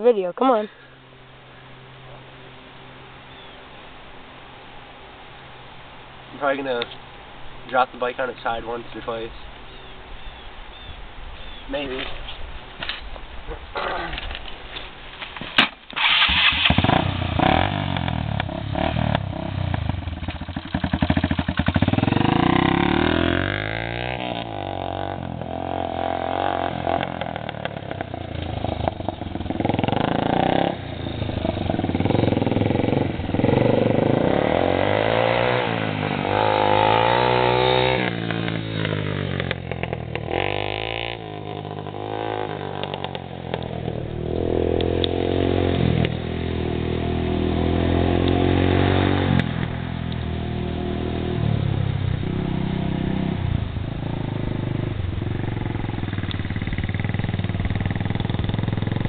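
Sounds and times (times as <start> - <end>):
dirt bike engine revving: 16.0 - 59.0.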